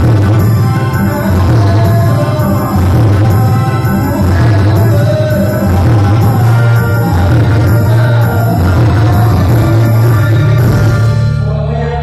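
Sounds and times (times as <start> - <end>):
amplified backing music with bass: 0.0 - 12.0
man singing through microphone: 0.0 - 12.0.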